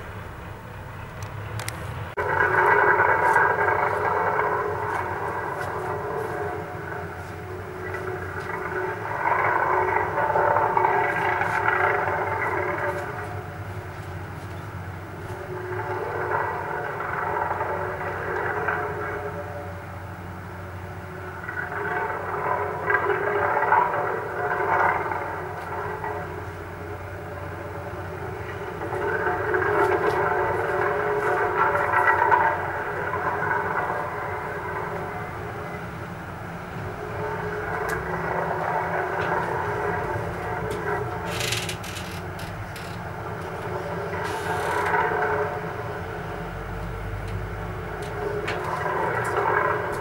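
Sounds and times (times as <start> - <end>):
box van engine droning: 23.6 - 50.0.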